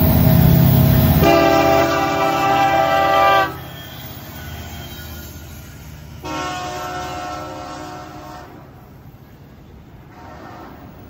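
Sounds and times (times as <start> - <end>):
freight train rumbling past: 0.0 - 11.0
locomotive air horn: 1.1 - 4.1, 6.2 - 8.8, 10.1 - 11.0.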